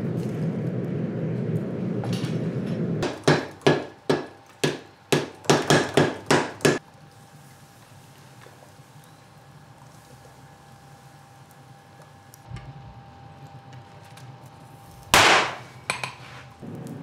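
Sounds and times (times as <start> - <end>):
forge fire rumbling: 0.0 - 5.6.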